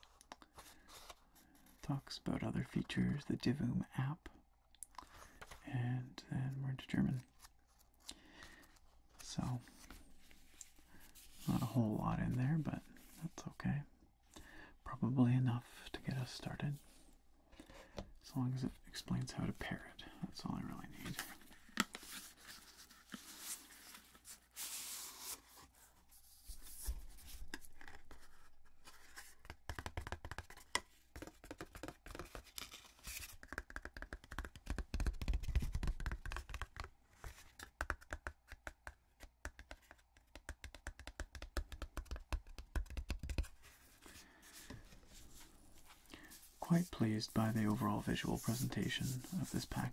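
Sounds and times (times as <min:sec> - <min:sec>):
fingertips tapping and scratching packaging: 0:27.3 - 0:44.8.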